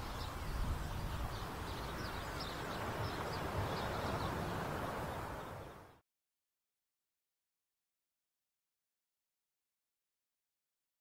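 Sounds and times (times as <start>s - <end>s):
surf hissing: 0.0s - 5.9s
wind rumble on microphone: 0.0s - 6.0s.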